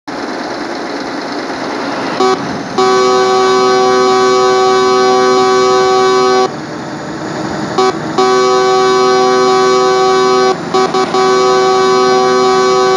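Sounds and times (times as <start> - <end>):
steady rushing noise: 0.1 - 5.5
locomotive air horn: 2.2 - 6.6, 7.7 - 12.9.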